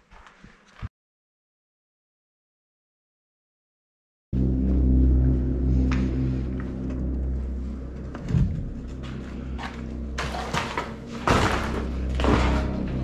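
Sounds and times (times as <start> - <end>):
low droning music: 4.3 - 13.0.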